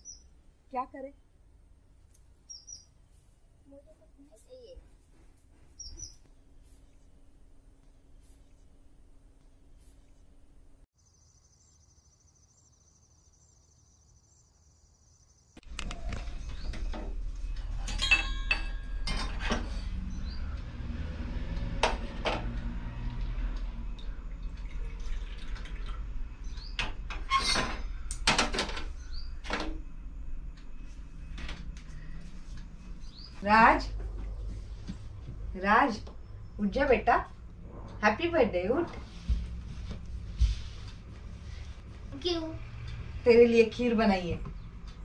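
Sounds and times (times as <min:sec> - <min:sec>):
metal pots and pans clinking: 0:17.7 - 0:19.8
steady low rumble: 0:29.8 - 0:45.0.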